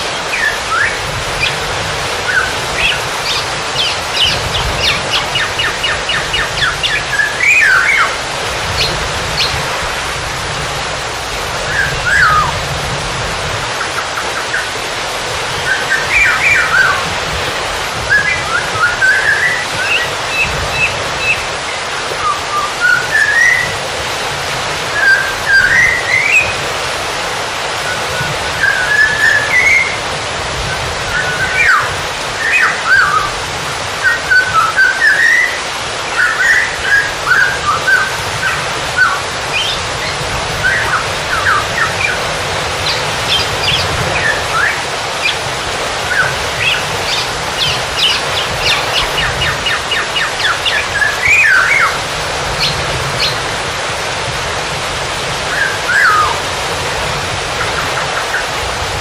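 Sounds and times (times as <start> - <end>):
birds whistling and chirping: 0.0 - 9.7, 11.6 - 12.6, 13.8 - 14.8, 15.5 - 23.8, 24.9 - 26.6, 27.8 - 30.0, 30.6 - 33.4, 34.0 - 53.5, 55.5 - 56.4, 57.6 - 58.6
rushing water: 0.0 - 59.0
high bird chirps: 2.2 - 8.2, 8.8 - 9.6, 37.7 - 42.2, 42.8 - 45.4, 46.1 - 52.0.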